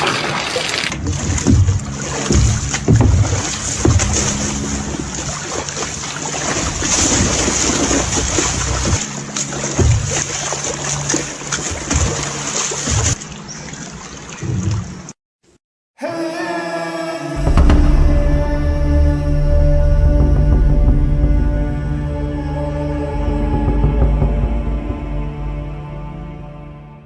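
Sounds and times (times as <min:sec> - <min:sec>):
water splashing and sloshing: 0:00.0 - 0:15.6.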